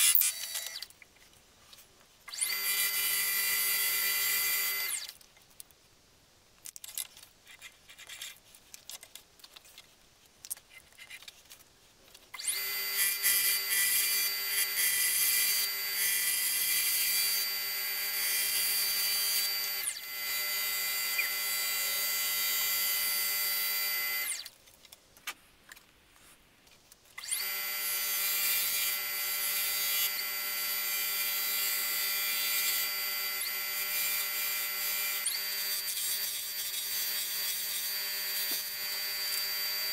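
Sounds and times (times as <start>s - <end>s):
turning tool cutting wood: 12.4s - 22.8s
wood lathe motor whine: 12.4s - 24.5s, 27.2s - 39.9s.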